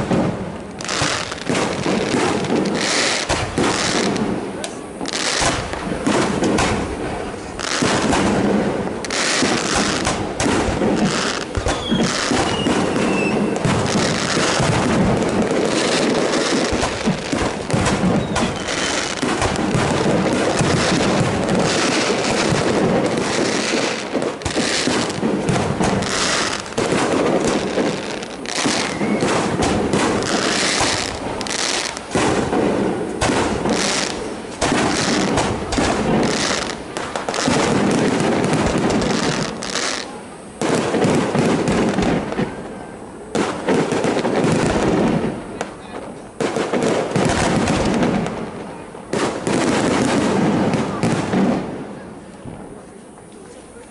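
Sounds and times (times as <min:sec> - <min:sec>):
fireworks shells bursting: 0:00.0 - 0:42.7.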